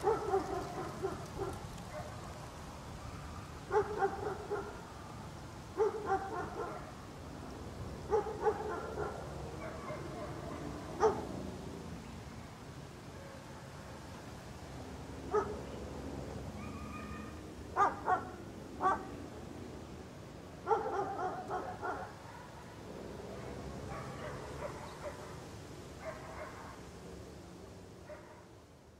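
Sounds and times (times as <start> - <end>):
dog barking: 0.0 - 2.2, 3.7 - 4.8, 5.8 - 6.9, 8.1 - 11.3, 15.3 - 15.6, 17.8 - 19.1, 20.6 - 22.8, 23.4 - 25.4, 26.0 - 26.8, 28.1 - 28.5.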